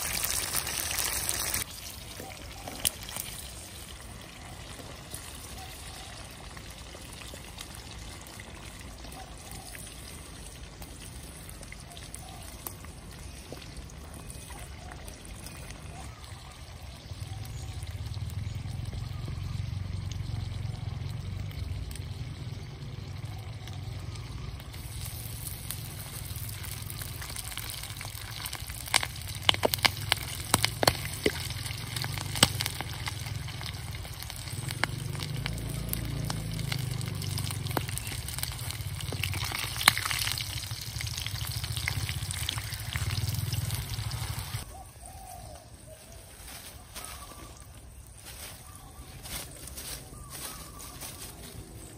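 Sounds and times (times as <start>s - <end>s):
oil sizzling in a wok: 0.0s - 14.5s, 17.4s - 44.6s
sharp clicks and crackles: 23.2s - 44.7s.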